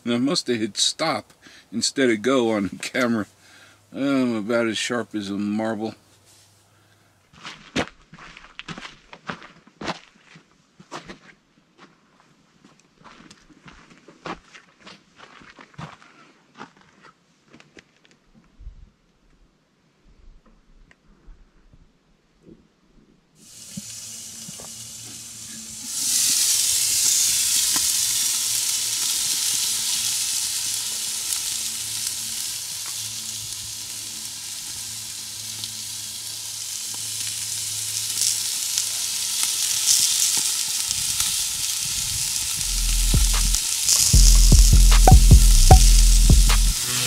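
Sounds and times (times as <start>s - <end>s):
loud steady hiss: 23.4s - 47.0s
deep bass rumble: 42.6s - 43.6s, 44.2s - 47.0s.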